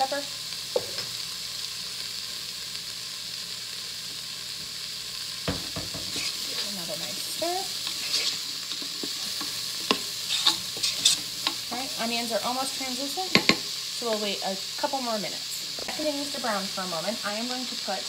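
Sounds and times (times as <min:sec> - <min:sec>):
vegetables sizzling in oil: 0:00.0 - 0:18.0
wooden spoon stirring and scraping: 0:05.9 - 0:13.6
spoon knocking against pot: 0:13.3 - 0:13.6.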